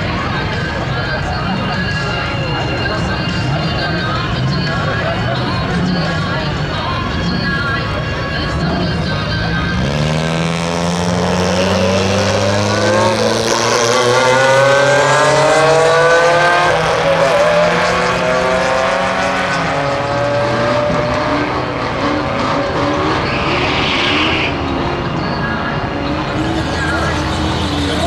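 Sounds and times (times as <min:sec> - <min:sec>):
drag racing cars accelerating: 0:00.0 - 0:28.0.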